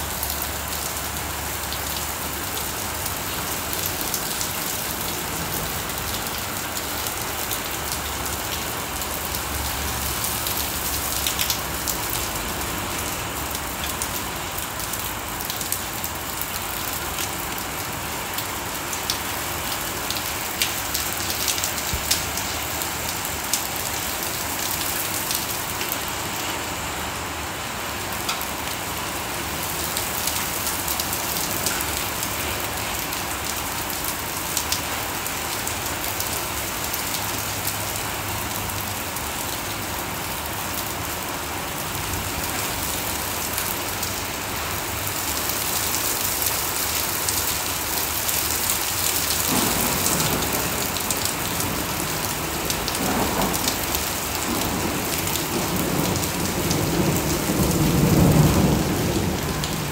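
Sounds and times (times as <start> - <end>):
heavy rain and hail on concrete: 0.0 - 59.9
thunder rumble: 49.4 - 59.9.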